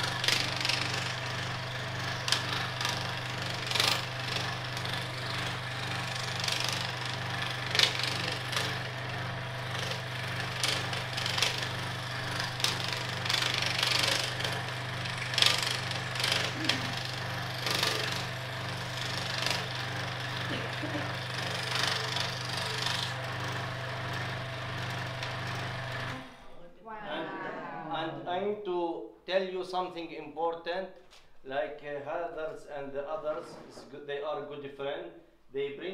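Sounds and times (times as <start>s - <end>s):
saw blade rasping through wood: 0.0s - 26.1s
scroll saw motor hum: 0.0s - 26.5s.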